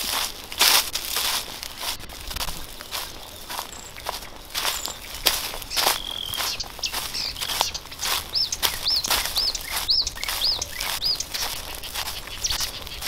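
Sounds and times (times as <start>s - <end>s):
footsteps on forest floor: 0.0s - 13.0s
bird calling high notes: 3.0s - 13.0s.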